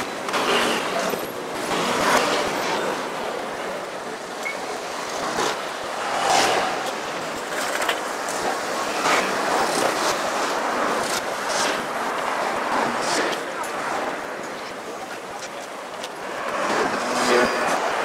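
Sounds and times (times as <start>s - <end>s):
street traffic: 0.0s - 18.0s
vehicles passing by: 0.0s - 18.0s.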